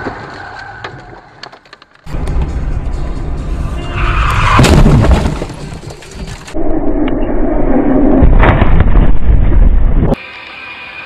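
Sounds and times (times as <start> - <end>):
road and wind rumble: 1.6 - 10.2
sudden loud bang: 4.3 - 5.8.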